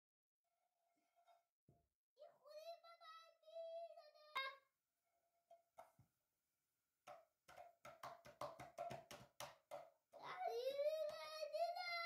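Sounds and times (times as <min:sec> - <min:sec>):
faint young child's voice: 0:02.2 - 0:04.7, 0:10.2 - 0:12.0.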